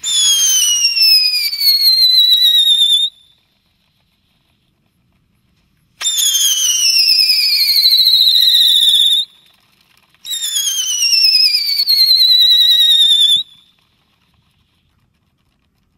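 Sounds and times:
firework whistling: 0.0s - 5.0s, 5.6s - 15.9s.

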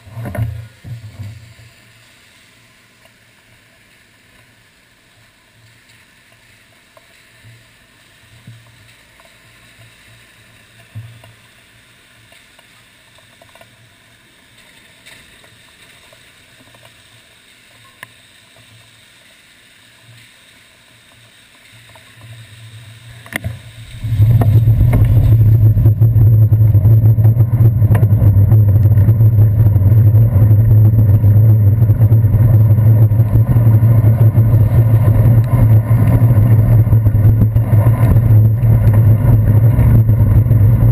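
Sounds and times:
low rumble of road vibration: 23.3s - 40.9s
wind noise: 23.3s - 40.9s.

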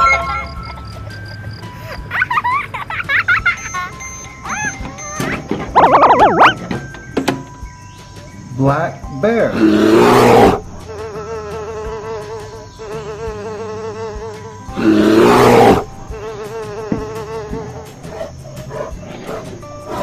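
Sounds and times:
buzzing hum with wavering pitch: 4.3s - 6.7s
animal roar sound effect: 9.5s - 10.6s, 14.8s - 15.9s.

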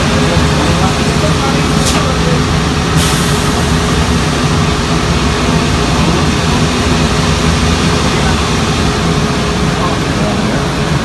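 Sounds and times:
laundry machinery rumble and hum: 0.0s - 11.0s
hiss of blowing air or steam: 2.9s - 4.2s.

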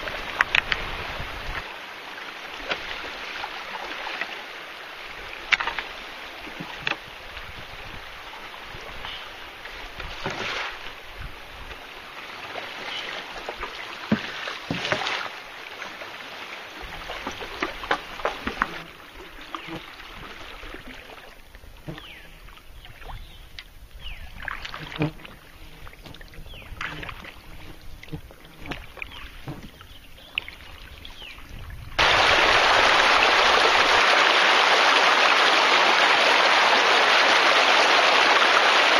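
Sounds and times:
river rushing: 0.0s - 21.3s, 32.0s - 38.9s
shallow water rushing over rocks: 0.0s - 38.9s
canoe pole knocks and splashes: 5.4s - 7.1s, 10.0s - 10.8s, 13.4s - 15.3s, 28.1s - 29.8s.

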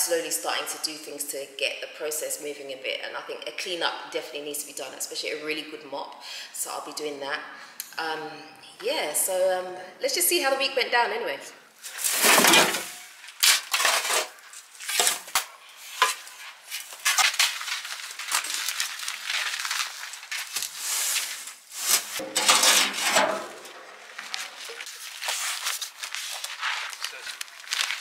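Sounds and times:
metal wheelbarrow clanks: 12.1s - 13.0s, 22.2s - 24.0s.

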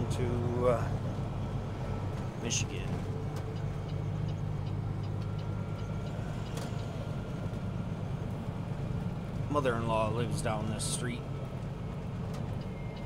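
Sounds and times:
diesel truck engine drone: 0.0s - 13.0s
faint regular ticking: 3.3s - 7.0s.

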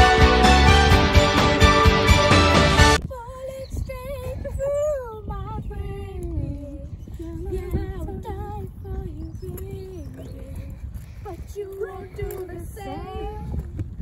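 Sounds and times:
background music: 0.0s - 3.0s
girl singing unaccompanied: 3.0s - 13.8s.

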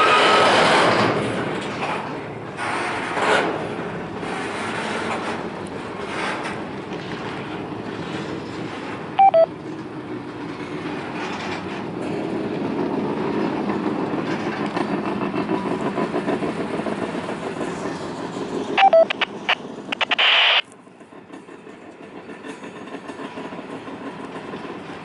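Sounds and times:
train wheels clicking over rails: 0.0s - 20.0s, 20.8s - 25.0s
two-note electronic beep: 9.2s - 9.5s, 18.8s - 19.3s.

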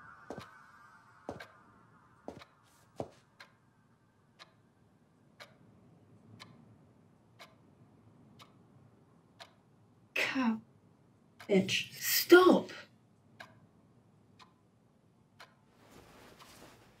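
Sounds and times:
clock ticking: 0.3s - 0.6s, 1.3s - 1.6s, 2.3s - 16.8s.

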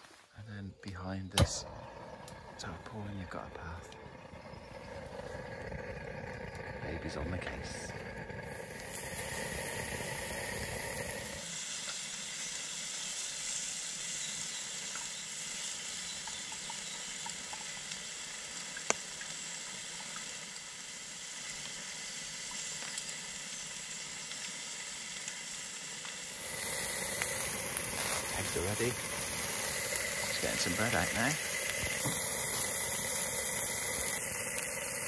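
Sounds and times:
bacon sizzling on griddle: 7.7s - 35.0s.

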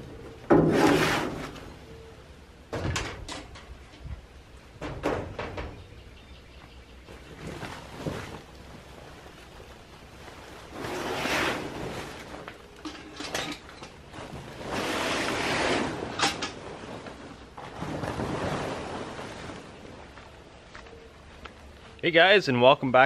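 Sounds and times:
plastic tarp rustling: 7.1s - 22.0s.

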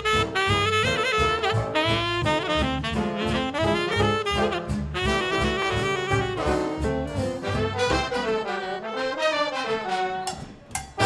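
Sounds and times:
big band playing swing: 0.0s - 11.0s.

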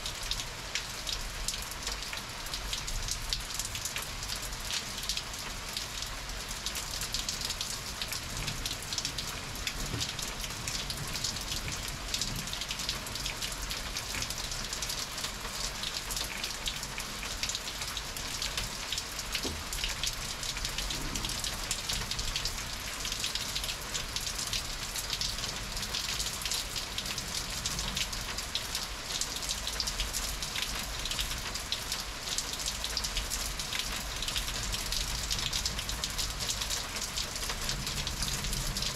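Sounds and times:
heavy rain hissing: 19.0s - 23.8s.

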